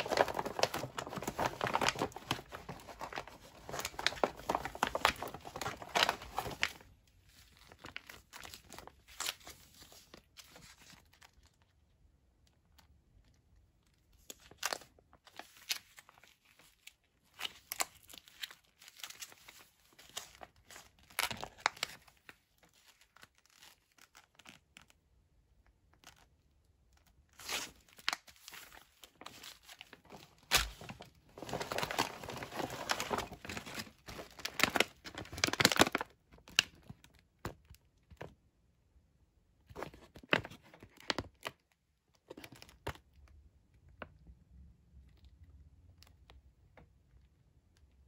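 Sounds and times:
plastic pouches crinkling: 0:00.0 - 0:11.4, 0:27.4 - 0:37.2.

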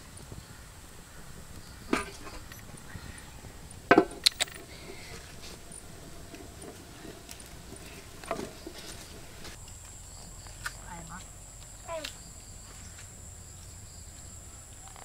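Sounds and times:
pot lid rattling: 0:01.1 - 0:02.9, 0:03.5 - 0:09.6.

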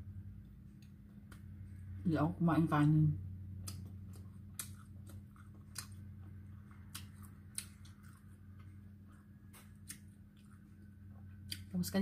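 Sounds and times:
low hum: 0:00.0 - 0:12.0
wet mouth clicks while chewing: 0:03.6 - 0:11.7.

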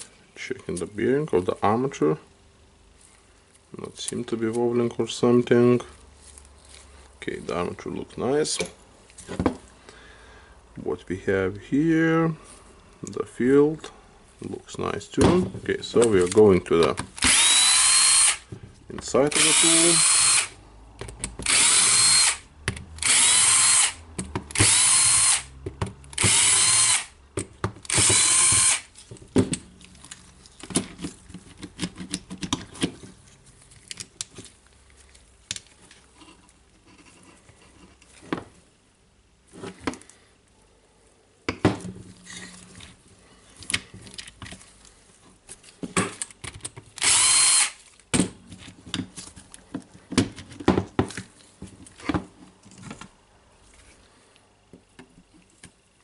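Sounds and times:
cordless drill bursts: 0:17.2 - 0:18.4, 0:19.3 - 0:20.6, 0:21.4 - 0:25.5, 0:26.2 - 0:27.2, 0:27.9 - 0:28.9, 0:47.0 - 0:47.8.

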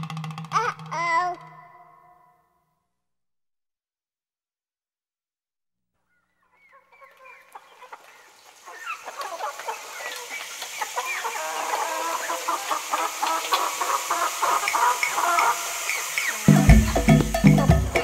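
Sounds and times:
chorus of chirping animal calls: 0:06.1 - 0:18.0.

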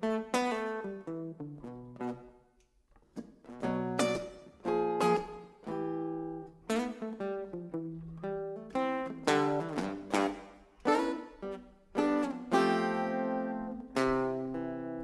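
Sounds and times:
acoustic guitar: 0:03.2 - 0:06.0.

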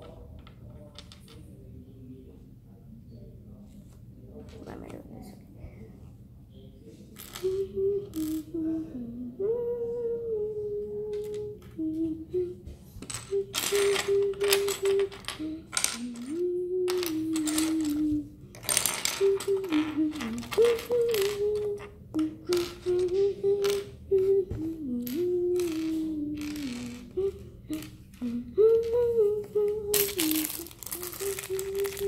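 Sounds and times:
person humming: 0:07.2 - 0:32.0
plastic bricks clattering: 0:13.0 - 0:21.9, 0:29.9 - 0:32.0.

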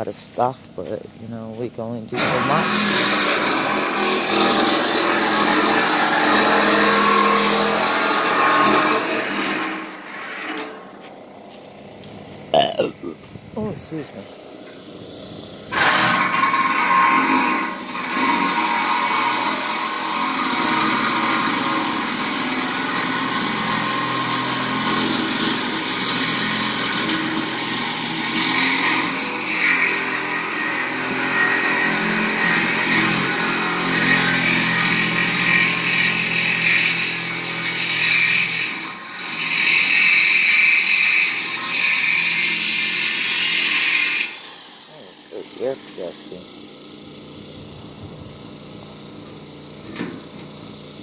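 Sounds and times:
power cutting tool cutting steel: 0:02.0 - 0:12.9, 0:13.6 - 0:51.0.

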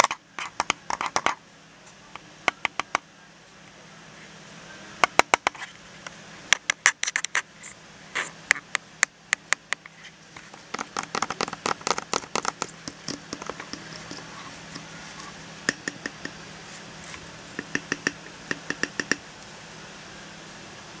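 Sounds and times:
tapping on glass lens: 0:10.5 - 0:16.4, 0:17.5 - 0:19.2.

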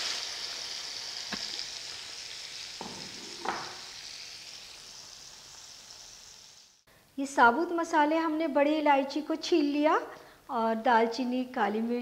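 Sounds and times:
paste sizzling in hot oil: 0:00.0 - 0:06.9.

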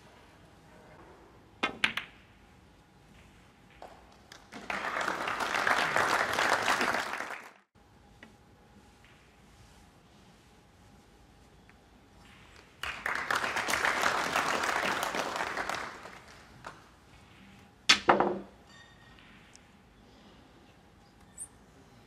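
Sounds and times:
audience applauding: 0:04.5 - 0:07.7, 0:12.8 - 0:16.8.

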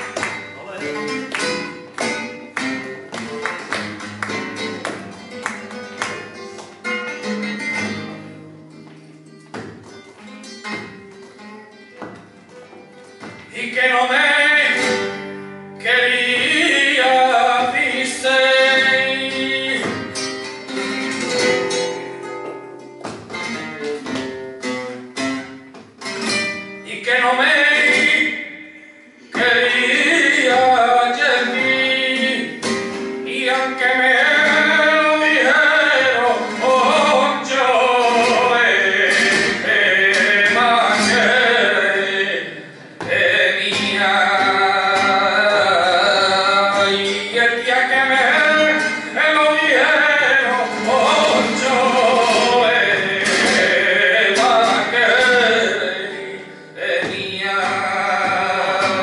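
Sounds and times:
guitar strummed and plucked: 0:00.0 - 0:59.0
man singing flamenco: 0:00.0 - 0:59.0.

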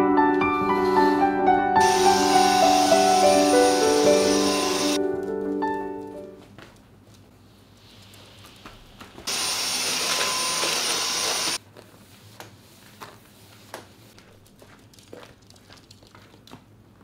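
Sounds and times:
small appliance motor running: 0:01.8 - 0:05.0, 0:09.3 - 0:11.6.

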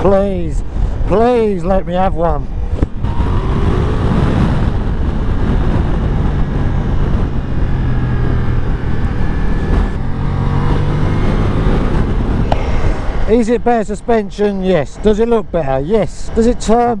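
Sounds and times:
wind over microphone: 0:00.0 - 0:17.0
motorcycle engine cruising: 0:02.8 - 0:13.4.

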